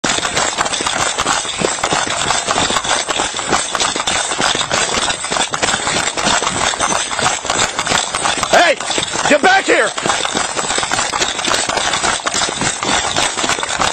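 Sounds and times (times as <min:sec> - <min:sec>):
running footsteps on gravel: 0:00.0 - 0:13.9.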